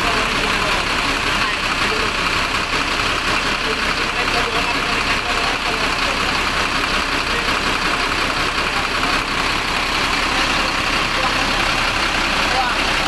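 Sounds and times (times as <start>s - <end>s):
bus diesel engine idling: 0.0s - 13.0s.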